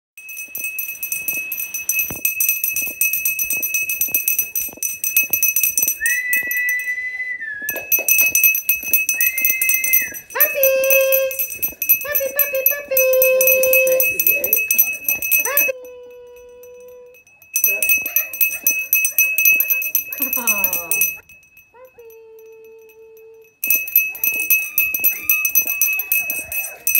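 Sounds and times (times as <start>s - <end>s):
high-pitched ringing: 0.2s - 26.9s
puppies whining: 6.0s - 10.4s
puppies yelping: 24.2s - 26.9s.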